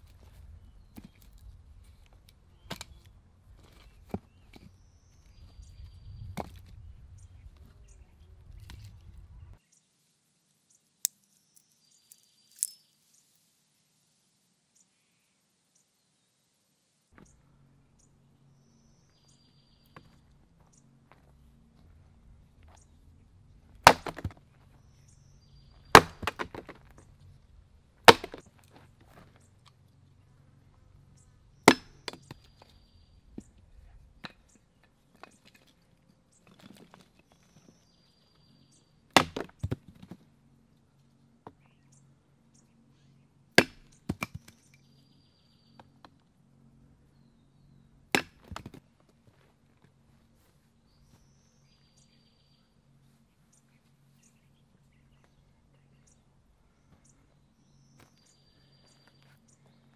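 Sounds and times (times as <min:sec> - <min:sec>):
axe chopping firewood: 0:23.7 - 0:24.6, 0:25.8 - 0:27.0, 0:28.0 - 0:28.8, 0:31.6 - 0:32.6, 0:39.1 - 0:40.2, 0:43.5 - 0:44.6, 0:48.1 - 0:48.8
split wood clattering: 0:23.8 - 0:24.8, 0:25.8 - 0:27.1, 0:28.0 - 0:29.3, 0:39.2 - 0:40.2.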